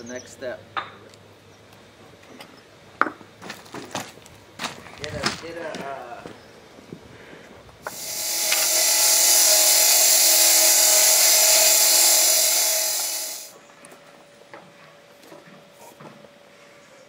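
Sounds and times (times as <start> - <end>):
motor hum: 7.9 - 13.5.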